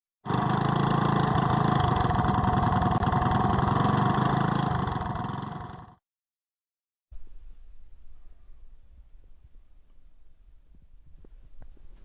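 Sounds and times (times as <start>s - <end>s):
go-kart engine running: 0.2s - 6.0s.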